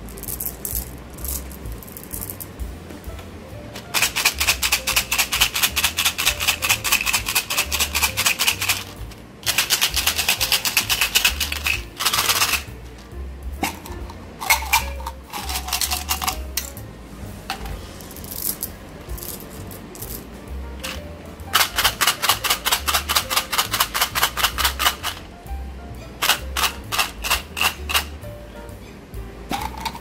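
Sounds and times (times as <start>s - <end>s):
pellets clicking into a hand: 0.1s - 2.5s, 3.9s - 12.7s, 14.4s - 16.4s, 18.2s - 20.2s, 20.8s - 25.2s, 26.2s - 28.1s
gum pellets rattling in bottle: 0.1s - 2.6s, 3.8s - 12.8s, 13.8s - 16.5s, 20.9s - 25.2s, 26.2s - 28.1s.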